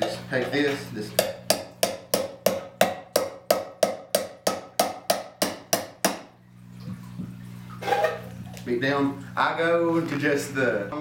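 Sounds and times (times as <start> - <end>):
hammer striking knife into tin can: 1.2 - 6.3.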